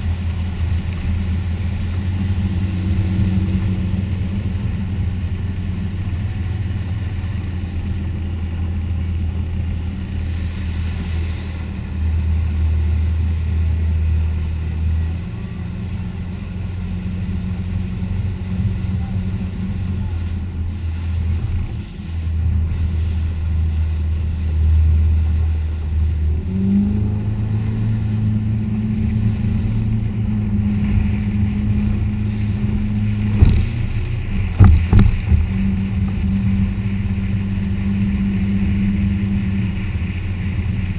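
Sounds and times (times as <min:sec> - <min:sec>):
boat engine drone: 0:00.0 - 0:40.9
rushing water: 0:00.0 - 0:40.9
wind: 0:00.0 - 0:40.9
sharp knocks: 0:33.3 - 0:33.9, 0:34.5 - 0:35.5.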